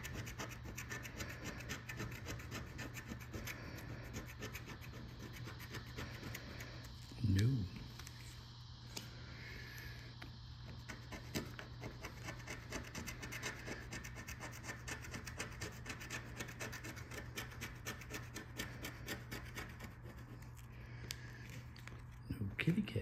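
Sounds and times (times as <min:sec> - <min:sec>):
coin scratching lottery ticket: 0:00.0 - 0:06.4, 0:10.9 - 0:20.4.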